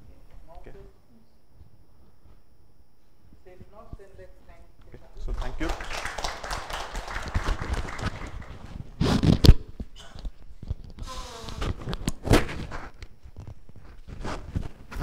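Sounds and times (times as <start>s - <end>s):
microphone handling noise: 7.2s - 15.0s.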